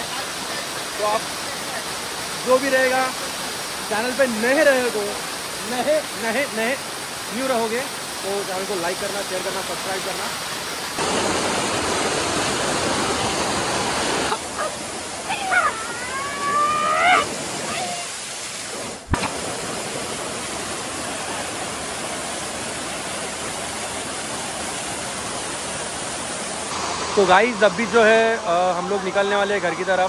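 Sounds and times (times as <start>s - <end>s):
waterfall rushing: 0.0s - 30.0s
person calling out: 15.3s - 18.2s.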